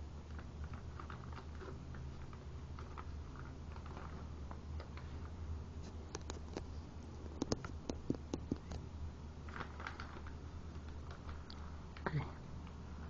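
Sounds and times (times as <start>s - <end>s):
steady low hum: 0.0s - 13.0s
paper crinkling and rustling: 9.5s - 11.5s.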